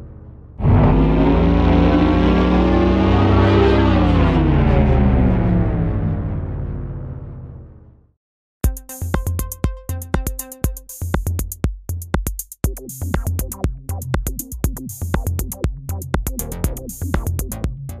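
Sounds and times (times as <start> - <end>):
electronic music with drum machine: 8.6 - 18.0.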